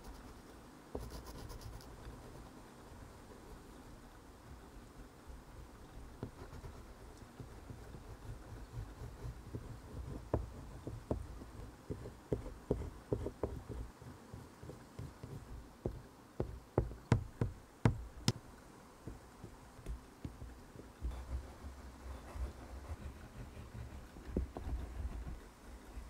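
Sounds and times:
pastel scraping on paper: 22.1s - 25.4s.

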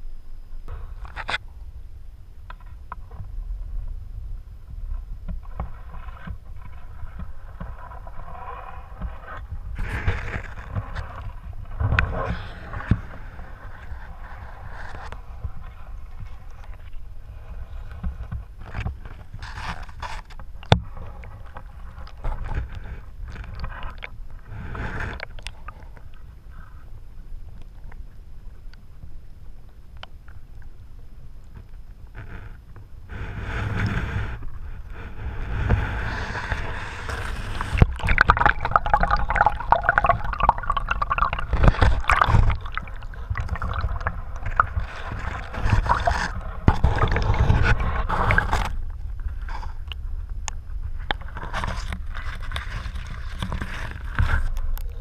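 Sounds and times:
knocks and scrapes: 5.3s - 26.1s, 32.1s - 50.0s, 50.9s - 55.0s
muffled underwater bubbling water: 33.1s - 55.0s.

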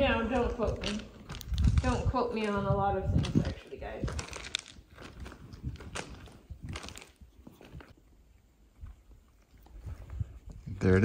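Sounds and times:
footsteps on gravel: 0.0s - 8.0s.

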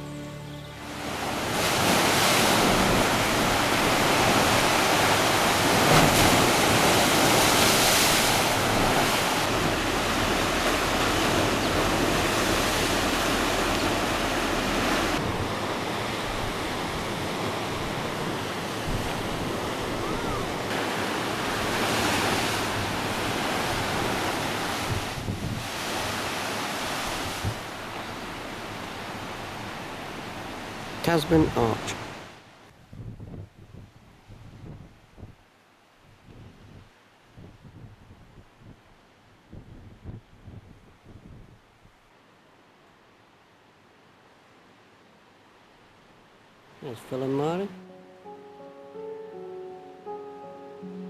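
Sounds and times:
surf breaking over rocks: 1.0s - 28.2s.

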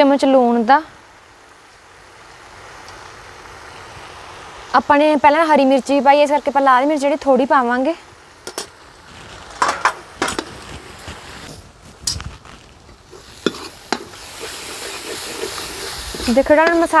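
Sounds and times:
food sizzling: 0.0s - 17.0s
ladle scraping metal pan: 13.1s - 17.0s.

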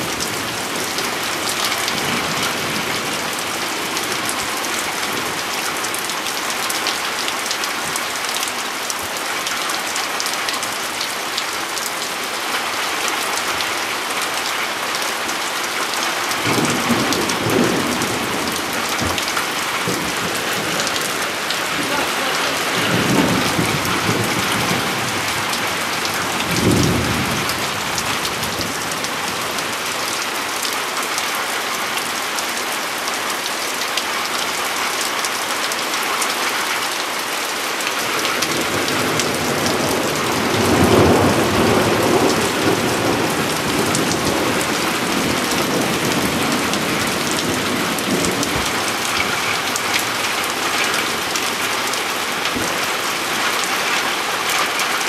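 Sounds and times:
heavy rain pouring: 0.0s - 55.0s
thunder rumbling: 16.4s - 29.4s, 38.5s - 51.6s.

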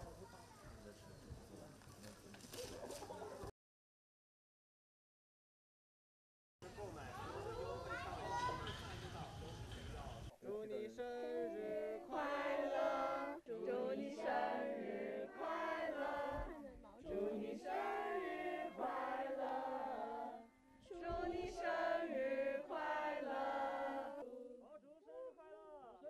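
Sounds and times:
crowd singing in unison: 10.4s - 24.8s.

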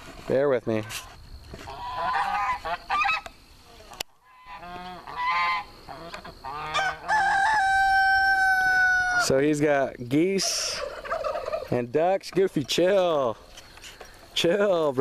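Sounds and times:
geese honking: 1.6s - 9.3s, 10.2s - 11.8s.

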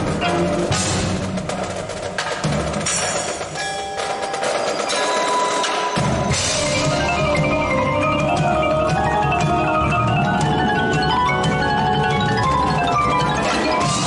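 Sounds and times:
drums: 0.0s - 14.0s
marimbas playing quick notes: 5.8s - 14.0s.

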